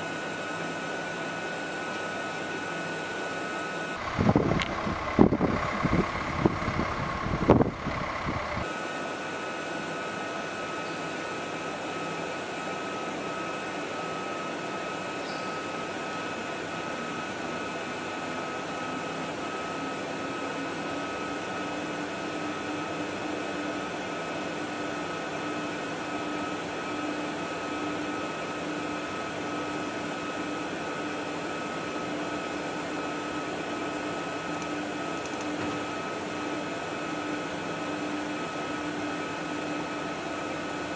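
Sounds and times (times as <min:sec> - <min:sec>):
steady mechanical hum: 0:00.0 - 0:40.9
low whine: 0:03.6 - 0:08.7
heavy vehicles rumbling: 0:04.0 - 0:08.7.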